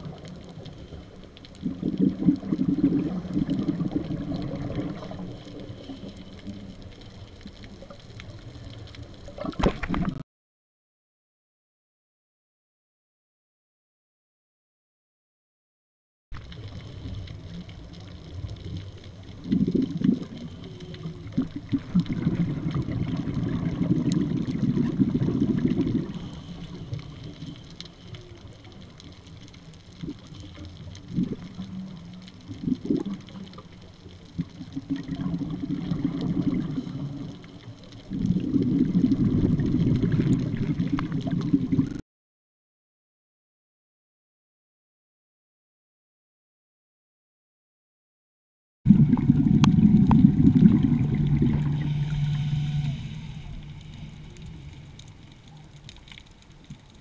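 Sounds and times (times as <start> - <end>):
gurgling exhaled bubbles underwater: 0.0 - 10.2, 16.4 - 42.0, 48.9 - 57.0.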